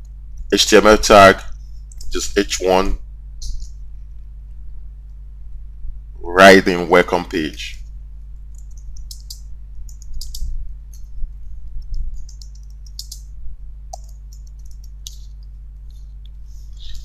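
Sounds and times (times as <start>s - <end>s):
steady low hum: 0.0s - 17.0s
computer keyboard keystroke clicks: 8.6s - 10.5s, 11.8s - 13.2s, 13.9s - 15.4s.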